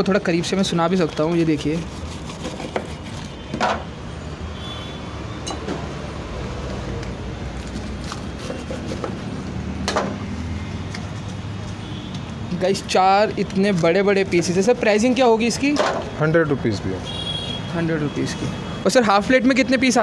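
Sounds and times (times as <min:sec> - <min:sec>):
knife crunching through fried food: 0:07.0 - 0:09.4.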